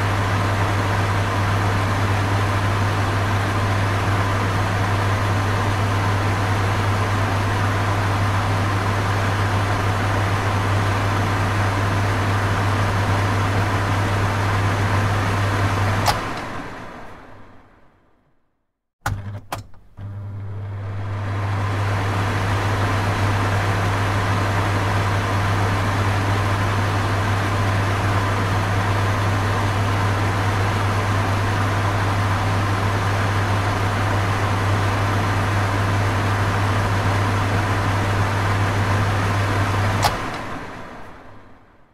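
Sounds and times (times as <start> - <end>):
exhaust fan humming: 0.0 - 18.0, 20.5 - 41.9
fan switch clicks: 16.0 - 17.2, 40.0 - 41.2.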